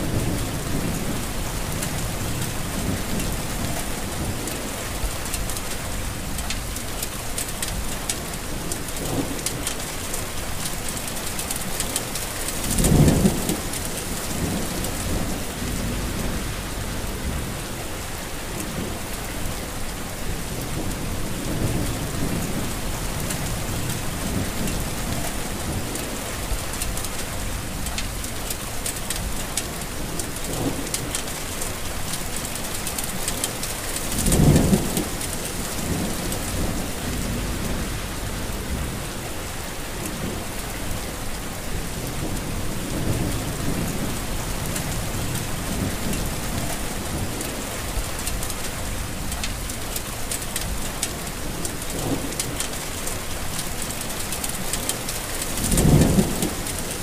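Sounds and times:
thunder rumbling: 0:00.0 - 0:05.3, 0:12.4 - 0:28.4, 0:33.1 - 0:49.8, 0:54.4 - 0:57.0
heavy rain falling: 0:00.0 - 0:57.0.

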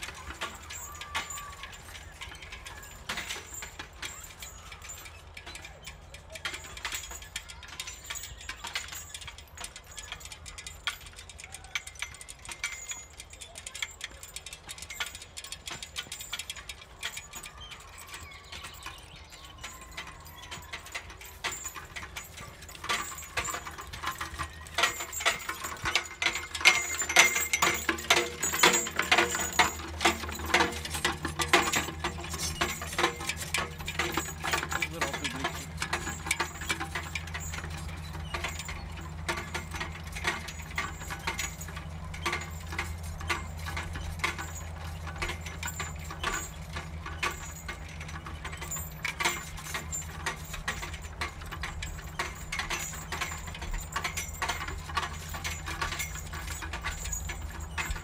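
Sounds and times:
road traffic rumble: 0:17.8 - 0:58.0
mower cutter bar clattering: 0:20.3 - 0:58.0.

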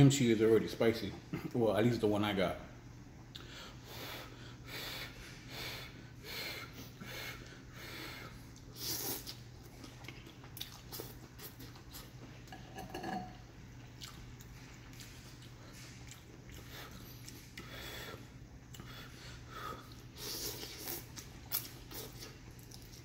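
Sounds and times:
steady low hum: 0:00.0 - 0:23.0
person slurping and chewing noodles: 0:08.5 - 0:12.4, 0:14.0 - 0:23.0.

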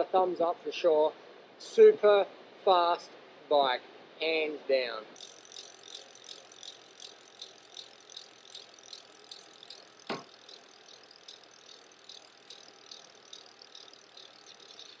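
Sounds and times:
bicycle freewheel ticking: 0:05.2 - 0:15.0.

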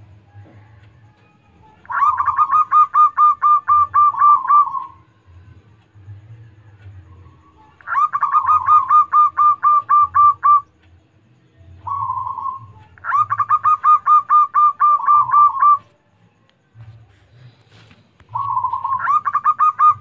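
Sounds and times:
dove rapid cooing: 0:11.8 - 0:15.9, 0:17.2 - 0:20.0.

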